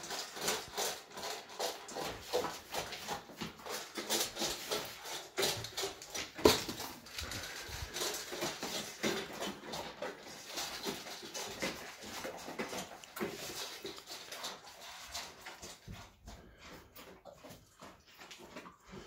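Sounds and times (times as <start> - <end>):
dog crunching kibble: 0.0 - 19.0.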